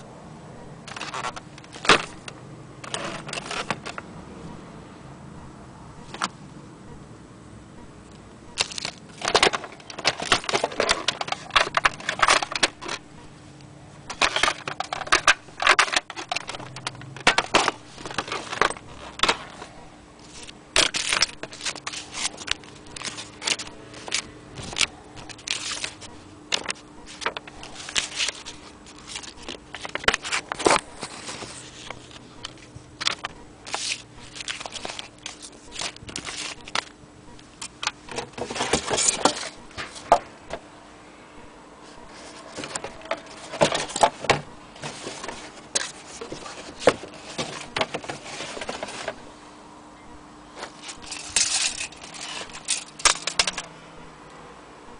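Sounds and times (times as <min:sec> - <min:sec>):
packaging rustling and crackling: 0:00.9 - 0:04.0, 0:08.6 - 0:13.0, 0:14.1 - 0:37.0, 0:37.7 - 0:40.3, 0:42.0 - 0:49.3, 0:50.6 - 0:53.7
plastic parts knocking together: 0:08.6 - 0:13.0, 0:14.1 - 0:19.6, 0:42.6 - 0:49.2, 0:50.6 - 0:53.7.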